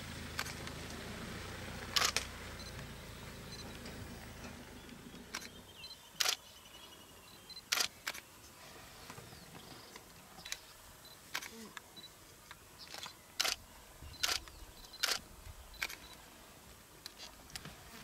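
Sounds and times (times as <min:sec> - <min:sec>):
camera shutter clicks: 0:01.9 - 0:02.3, 0:06.2 - 0:06.4, 0:07.7 - 0:08.2, 0:12.9 - 0:13.6, 0:14.2 - 0:15.2, 0:15.8 - 0:16.2.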